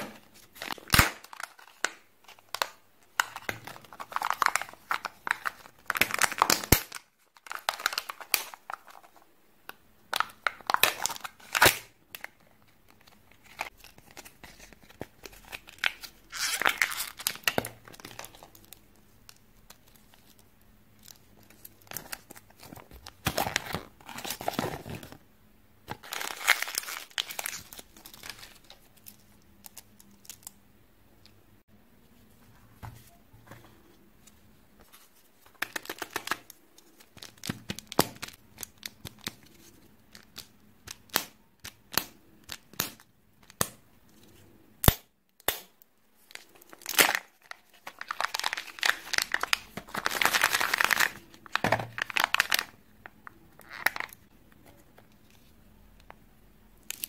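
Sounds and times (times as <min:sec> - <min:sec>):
foil crinkling and tearing: 0:26.0 - 0:28.6, 0:46.3 - 0:52.8.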